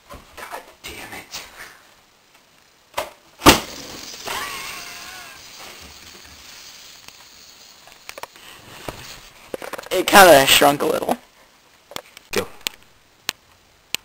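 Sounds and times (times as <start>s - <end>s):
balloon bursting with a bang: 3.4s - 4.4s.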